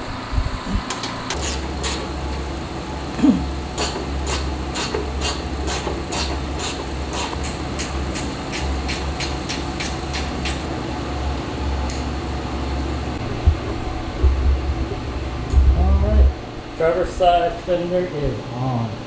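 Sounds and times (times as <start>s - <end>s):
ratchet clicking: 3.8s - 10.6s
low hum: 10.7s - 19.0s.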